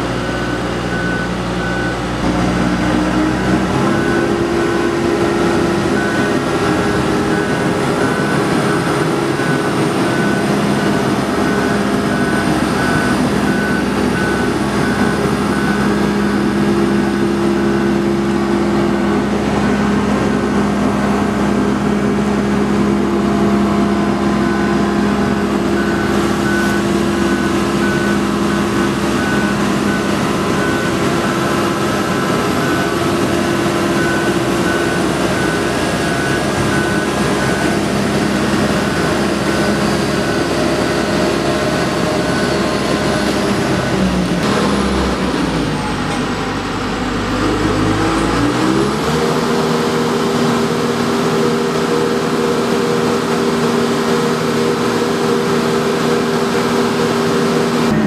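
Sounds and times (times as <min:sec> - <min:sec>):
boat hoist engine running: 0:00.0 - 0:58.0
warning beeper short beeps: 0:24.3 - 0:38.0.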